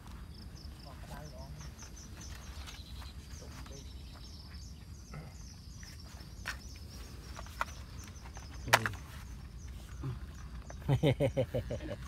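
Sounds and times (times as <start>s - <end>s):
faint high chirping: 0.2s - 12.0s.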